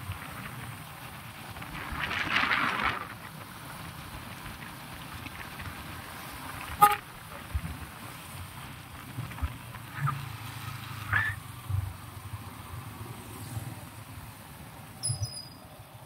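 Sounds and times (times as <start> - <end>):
road traffic noise: 0.0 - 16.0
vehicle horn toot: 6.8 - 7.0.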